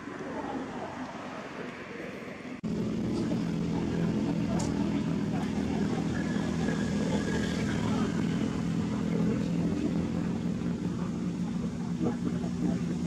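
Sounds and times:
motor engine droning: 0:02.6 - 0:13.0.

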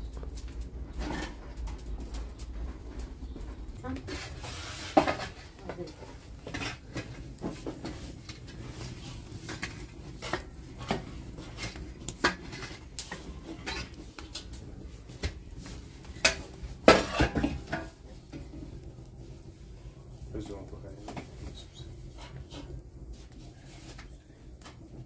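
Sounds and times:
metal shovel scraping embers: 0:03.8 - 0:18.8, 0:19.8 - 0:24.8.

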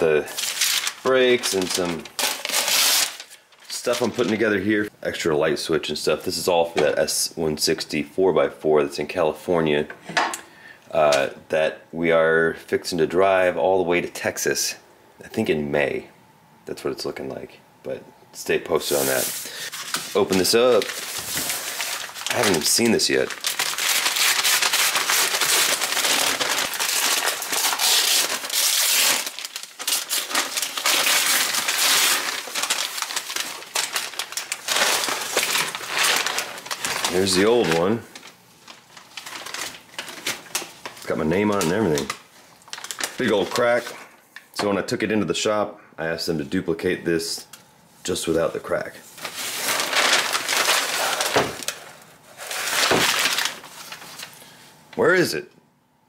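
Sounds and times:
packing paper crinkling and tearing: 0:00.0 - 0:04.9, 0:18.8 - 0:44.0, 0:49.1 - 0:54.6.

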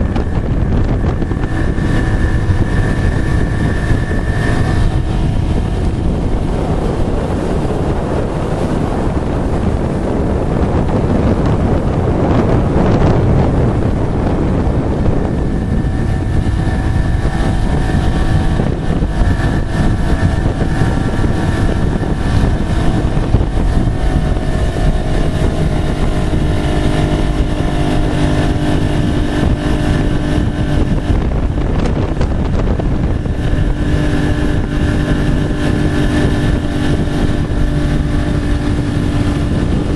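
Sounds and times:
boat engine running: 0:00.0 - 0:39.9
water rushing: 0:00.0 - 0:39.9
wind noise on microphone: 0:00.0 - 0:39.9.

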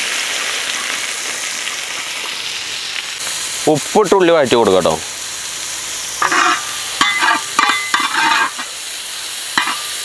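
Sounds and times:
onions sizzling in oil: 0:00.0 - 0:10.0
spatula scraping a pan: 0:06.2 - 0:08.8, 0:09.6 - 0:09.9.

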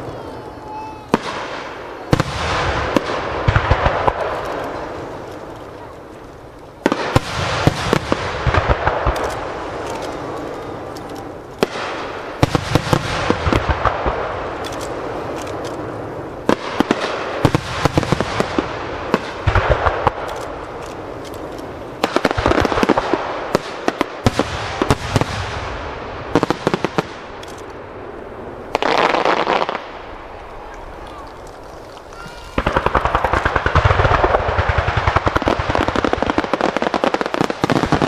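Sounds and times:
firework crackling: 0:00.0 - 0:38.0
firework shells bursting: 0:28.6 - 0:38.0.

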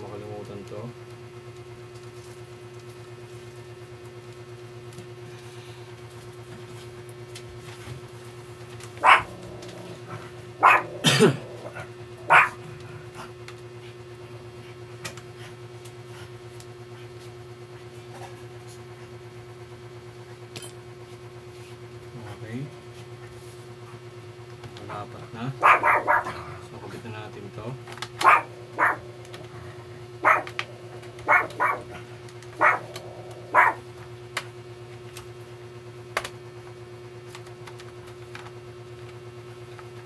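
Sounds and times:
steady low hum: 0:00.0 - 0:40.0
dog barking: 0:09.0 - 0:09.5, 0:10.6 - 0:12.6, 0:25.6 - 0:26.5, 0:28.2 - 0:29.2, 0:30.2 - 0:33.8.

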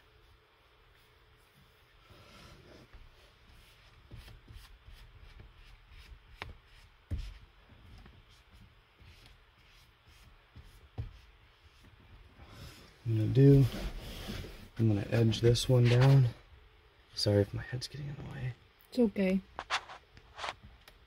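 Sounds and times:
cloth wiping screen film: 0:19.6 - 0:20.6.

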